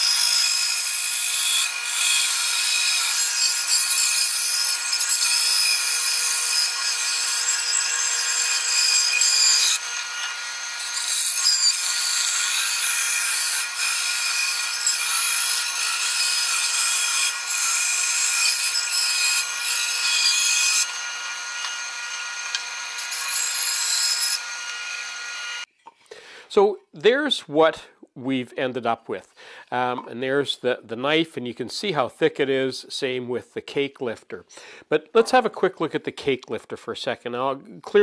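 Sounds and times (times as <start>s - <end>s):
bandsaw cutting wood: 0.0s - 25.7s.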